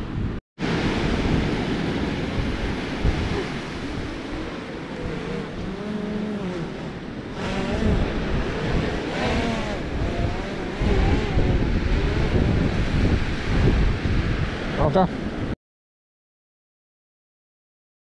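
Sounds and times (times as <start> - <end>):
wind: 0.0 - 15.6
drone propellers whining: 1.8 - 14.0.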